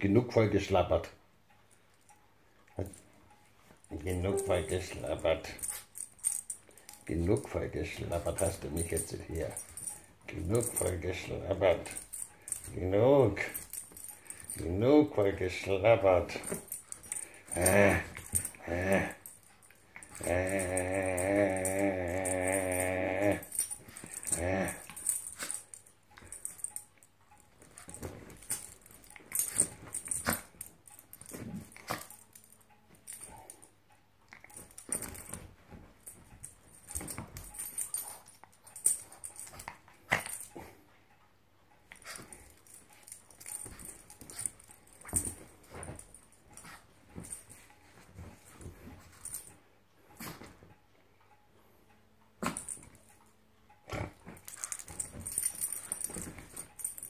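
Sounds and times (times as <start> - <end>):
rustling: 3.6 - 33.7, 34.3 - 40.6, 41.9 - 49.6, 53.9 - 57.0
dog play-growling: 16.4 - 26.8, 27.6 - 32.3, 53.9 - 57.0.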